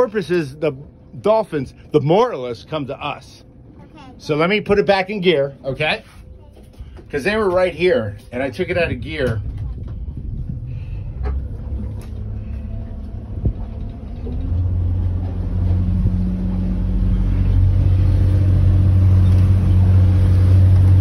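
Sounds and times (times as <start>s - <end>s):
boat engine running: 6.6s - 21.0s.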